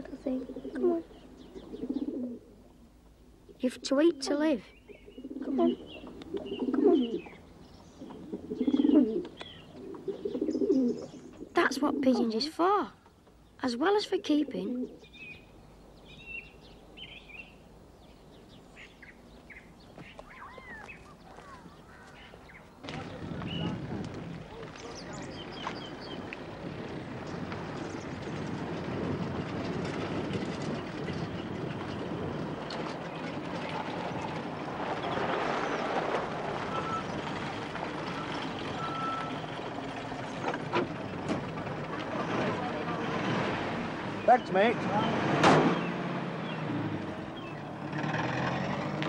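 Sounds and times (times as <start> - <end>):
faint outdoor hiss: 0.0 - 27.8
small birds chirping: 0.0 - 29.5, 30.3 - 35.9, 44.0 - 48.0
whistled bird calls: 20.0 - 22.7, 38.1 - 39.5.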